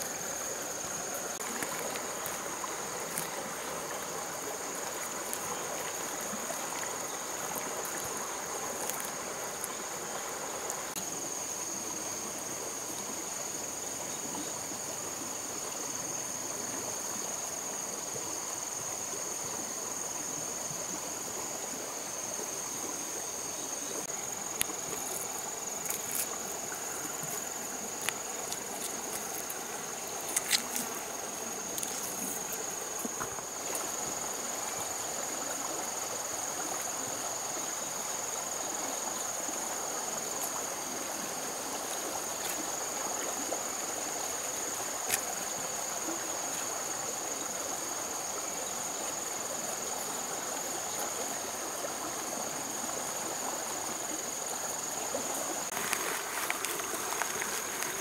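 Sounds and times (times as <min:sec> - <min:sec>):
background hiss: 0:00.0 - 0:58.0
insects calling high tone: 0:00.0 - 0:58.0.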